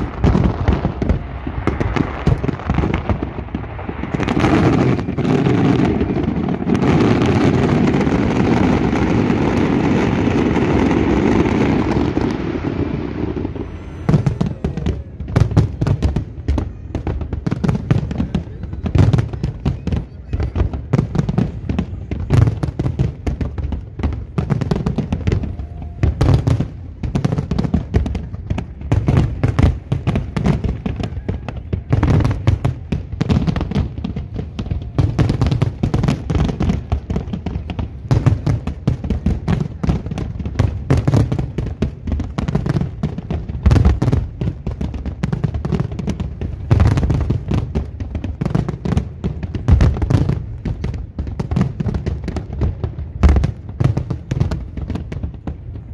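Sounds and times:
deep rumble: 0:11.4 - 0:17.4.

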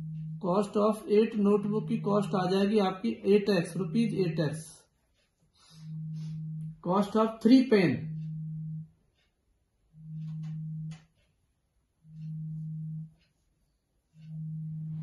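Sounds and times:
phone vibrating on table: 0:00.0 - 0:00.7, 0:05.6 - 0:09.0, 0:09.9 - 0:11.3, 0:12.0 - 0:13.4, 0:14.0 - 0:15.0.

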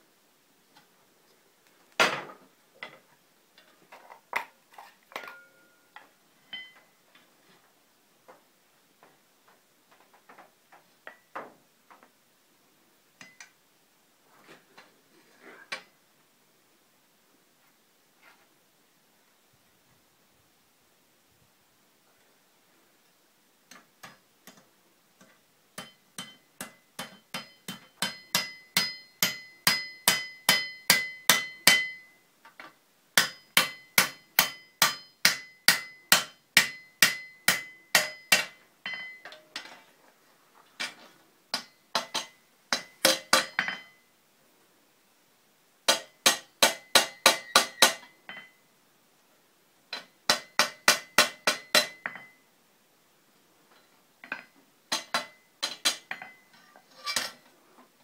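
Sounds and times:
hammer striking iron on anvil: 0:25.8 - 0:32.2, 0:33.2 - 0:39.4, 0:41.5 - 0:44.0, 0:45.9 - 0:48.6, 0:50.0 - 0:52.4, 0:54.3 - 0:56.4.

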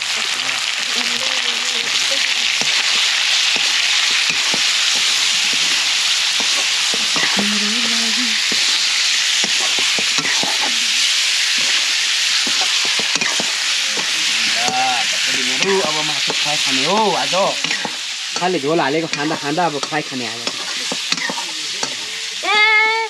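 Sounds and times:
meat sizzling in hot oil: 0:00.0 - 0:23.0
wooden spatula scraping a pan: 0:19.2 - 0:22.1.

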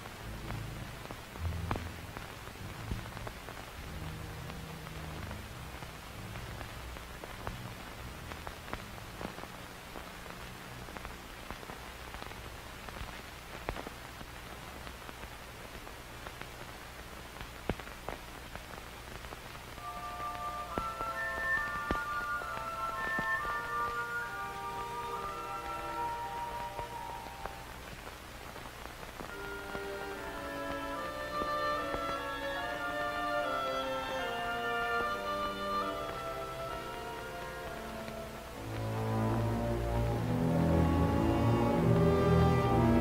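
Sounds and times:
record surface hiss: 0:00.0 - 0:43.0
low rumble: 0:00.2 - 0:08.5.

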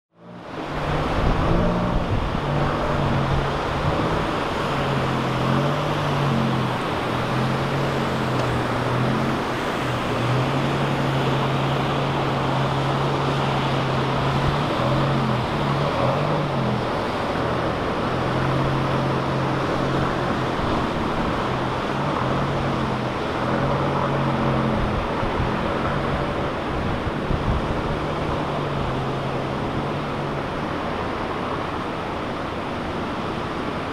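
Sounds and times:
low engine hum: 0:00.1 - 0:33.9
water sloshing and splashing: 0:00.2 - 0:33.9
wind noise: 0:00.2 - 0:33.9.

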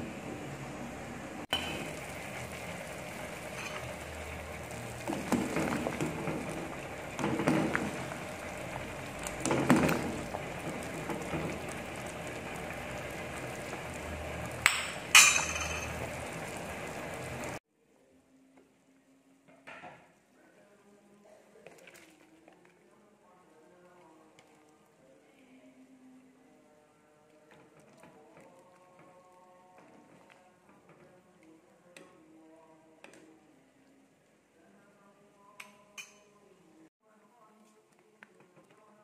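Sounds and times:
soup boiling in a pot: 0:00.0 - 0:17.6, 0:21.6 - 0:25.2, 0:26.2 - 0:35.0.

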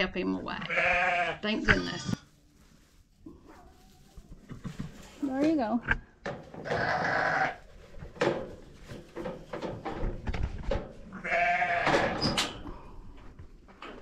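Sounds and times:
sheep bleating: 0:00.7 - 0:02.2, 0:06.6 - 0:07.6, 0:11.2 - 0:11.9.

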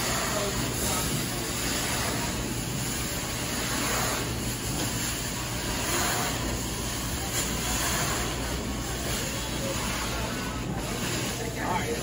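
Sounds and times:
carpet cleaning wand suction: 0:00.0 - 0:08.4.

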